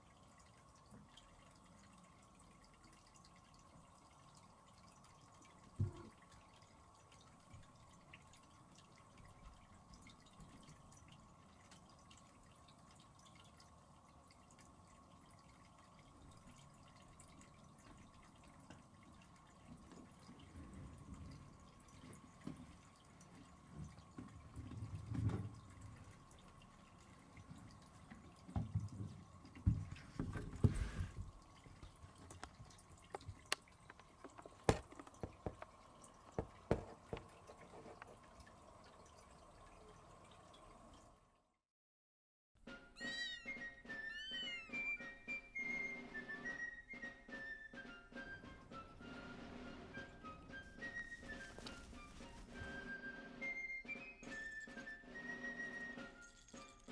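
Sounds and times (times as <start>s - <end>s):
faint steady hum: 0.0s - 41.2s.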